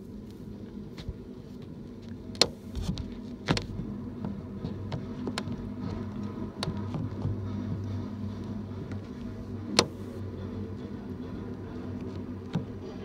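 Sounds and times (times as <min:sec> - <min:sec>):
freight train rumble: 0:00.0 - 0:13.0.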